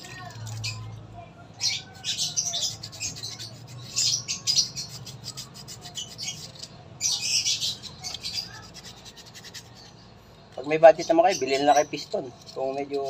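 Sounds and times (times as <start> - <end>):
sandpaper rubbing on metal: 1.9 - 10.0, 10.7 - 13.0.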